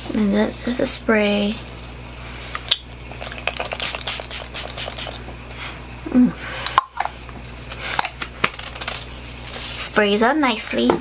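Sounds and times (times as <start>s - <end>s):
low voice hum: 5.6s - 6.8s.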